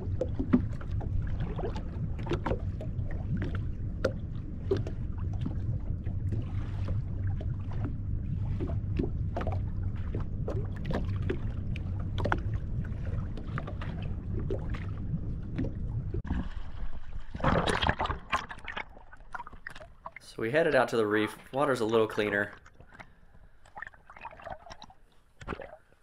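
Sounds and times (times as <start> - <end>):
boat engine running: 0.0 - 16.3.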